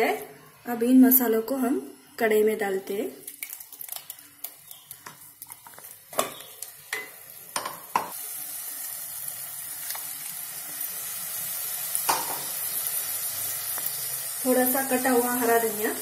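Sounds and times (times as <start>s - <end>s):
paste sizzling in hot oil: 3.4s - 16.0s.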